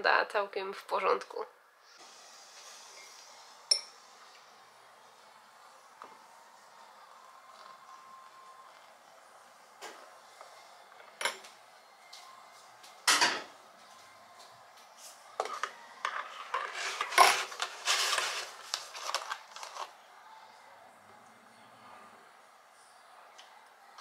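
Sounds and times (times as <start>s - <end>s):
spoon clinking while stirring: 3.7s - 3.9s
teaspoon tapping a ceramic cup: 3.7s - 3.9s.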